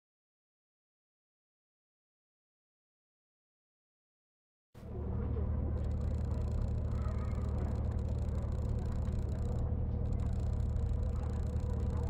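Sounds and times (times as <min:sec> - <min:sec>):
low background rumble: 0:04.8 - 0:12.0.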